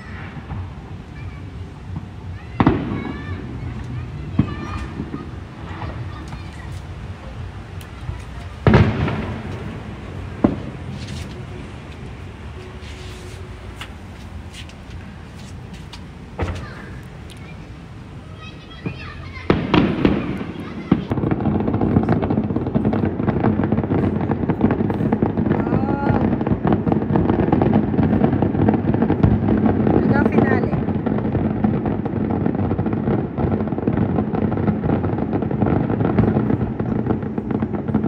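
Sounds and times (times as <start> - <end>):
low outdoor rumble: 0.0 - 38.0
distant firework boom: 1.9 - 6.7, 7.8 - 11.0, 18.8 - 38.0.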